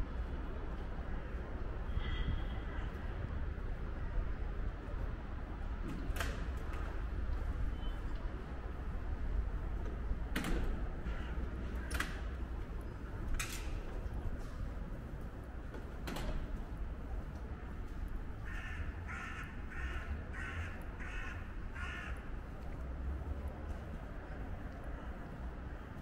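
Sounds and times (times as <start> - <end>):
crow cawing: 18.4 - 22.3.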